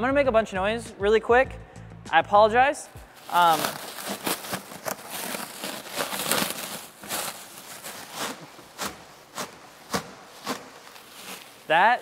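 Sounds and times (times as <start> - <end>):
plastic stretch wrap crinkling: 3.1 - 12.0.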